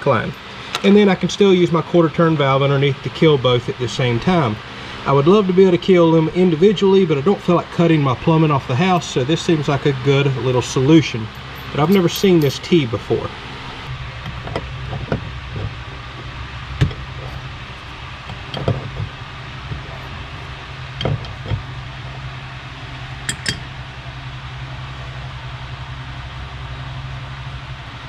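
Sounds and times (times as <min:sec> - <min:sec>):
steady low hum: 0:00.0 - 0:28.0
light clicks and knocks on fittings: 0:14.2 - 0:20.2.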